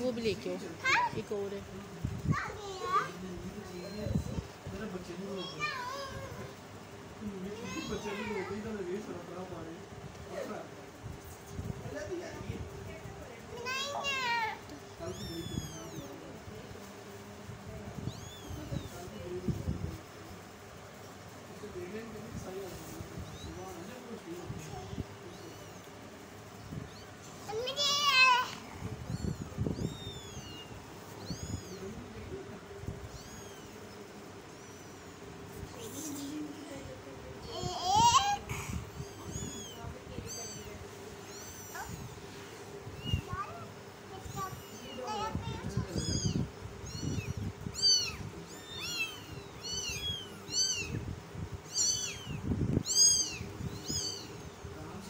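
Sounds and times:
kittens mewing: 13.6s - 17.0s, 18.0s - 19.2s, 25.0s - 54.8s.

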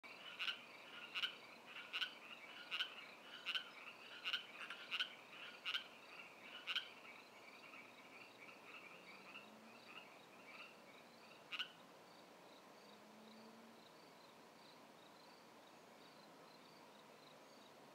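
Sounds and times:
frog chorus: 0.1s - 11.8s
nearby frog calling: 0.2s - 11.8s.

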